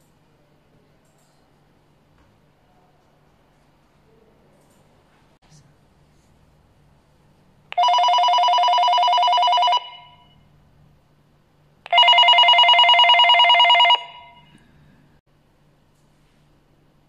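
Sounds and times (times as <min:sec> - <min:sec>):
two-tone electronic ringing: 0:07.8 - 0:10.4, 0:11.9 - 0:14.5.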